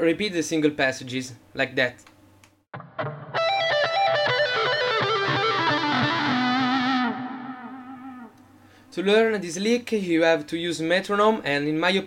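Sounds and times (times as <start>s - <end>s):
distorted electric guitar lick: 2.7s - 8.6s.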